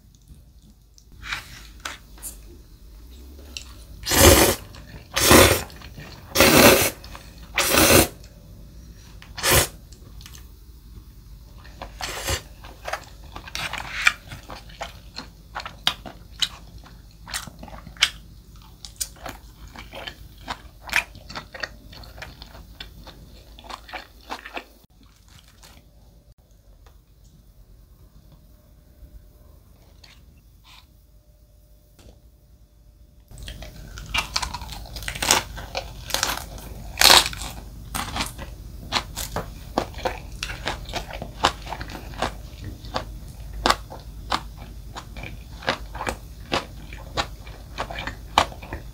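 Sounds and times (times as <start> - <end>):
noodles slurping: 4.0 - 8.2.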